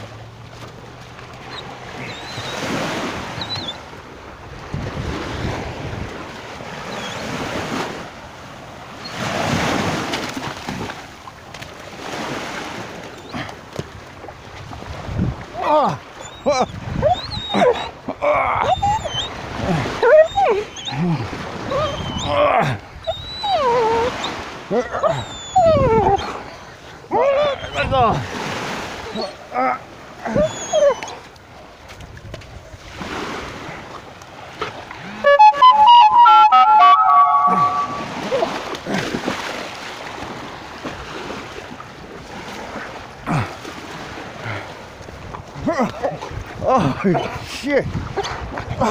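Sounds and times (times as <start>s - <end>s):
small waves washing on sand: 0.0s - 23.0s, 25.6s - 35.4s, 37.6s - 48.9s
dog whining and yelping: 1.5s - 3.8s, 6.8s - 7.3s, 16.2s - 28.1s, 29.0s - 29.4s, 30.2s - 31.3s, 35.1s - 38.6s
wind on microphone: 4.4s - 8.1s, 14.5s - 15.7s, 16.4s - 18.0s, 25.0s - 29.2s, 45.2s - 48.9s
short sound falling in pitch: 35.2s - 38.1s.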